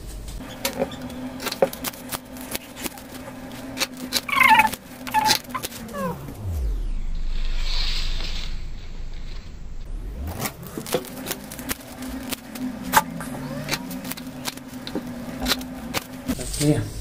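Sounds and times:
scissors snipping paper: 0.6 - 6.2, 10.3 - 16.7
deep rumble rising in pitch: 3.2 - 16.3.

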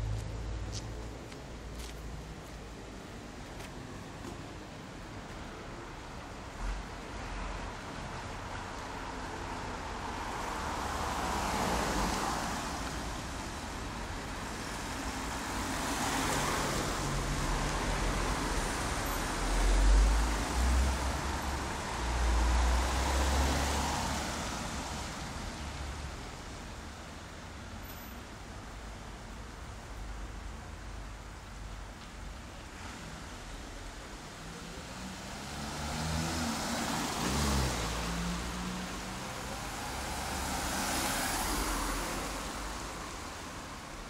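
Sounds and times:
cars driving past: 6.7 - 26.6, 34.2 - 44.0.

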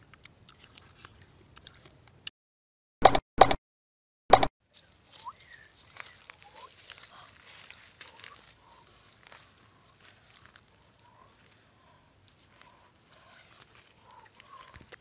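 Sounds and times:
leaves rustling: 4.6 - 15.0.

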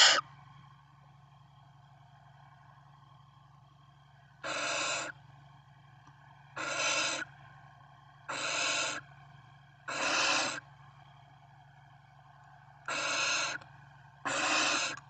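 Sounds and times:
owlets rasping begging calls: 0.0 - 0.2, 4.4 - 5.1, 6.6 - 7.2, 8.3 - 9.0, 9.9 - 10.6, 12.9 - 13.6, 14.3 - 15.0.

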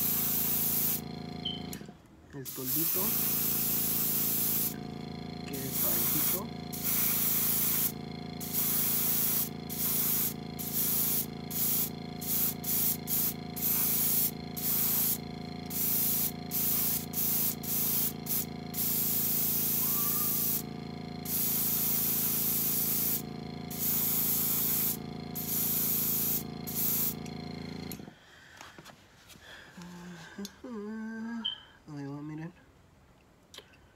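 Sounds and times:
airbrush hissing: 0.0 - 1.5, 2.5 - 27.7
air compressor humming: 0.0 - 28.2.

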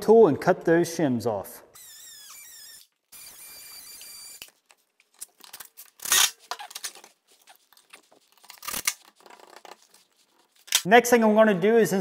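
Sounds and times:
oscillating multi-tool cutting: 1.8 - 4.5
handling clicks and rustles: 4.4 - 10.9.

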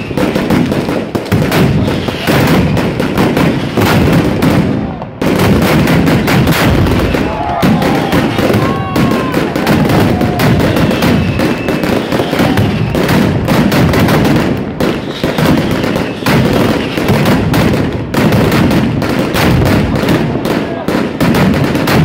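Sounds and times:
whistling firework tones: 0.0 - 0.8, 1.7 - 3.7, 6.2 - 13.5, 14.8 - 17.3
firecrackers rattling bangs: 0.0 - 22.0.

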